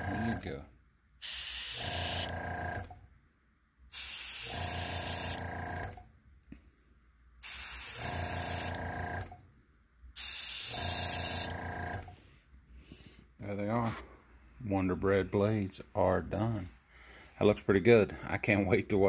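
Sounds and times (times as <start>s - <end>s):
compressor motor hum: 0.0s - 3.2s, 3.9s - 6.1s, 7.4s - 9.6s, 10.2s - 12.3s
airbrush air hiss: 1.2s - 2.2s, 4.0s - 5.4s, 7.4s - 8.8s, 10.2s - 11.5s.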